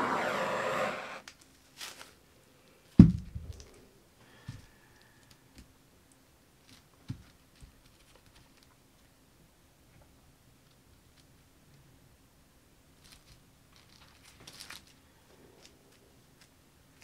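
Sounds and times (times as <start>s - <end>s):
handling knocks: 3.0s - 3.6s.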